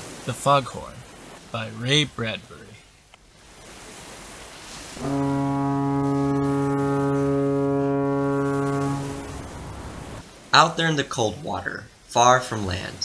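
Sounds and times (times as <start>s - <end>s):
faint hiss: 4.5s - 13.0s
foghorn blast: 5.0s - 10.2s.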